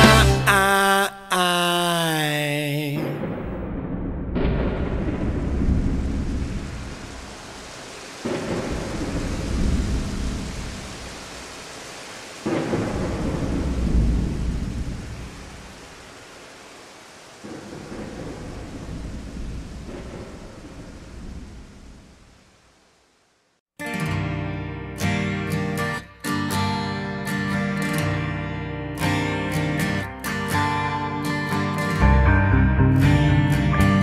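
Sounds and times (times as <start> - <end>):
rolling thunder: 3.0 - 11.4, 12.4 - 15.8, 17.4 - 22.3
steady rain: 4.4 - 23.6.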